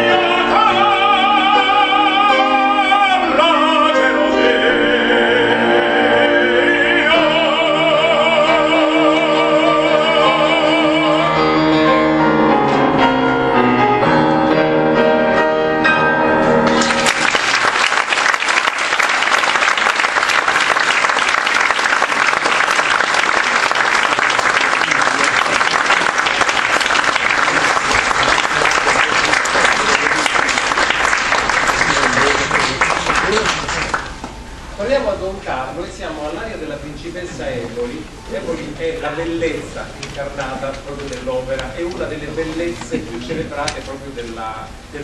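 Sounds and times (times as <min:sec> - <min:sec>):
man singing opera: 0:00.0 - 0:12.1
grand piano: 0:00.0 - 0:45.0
audience applause: 0:16.7 - 0:34.2.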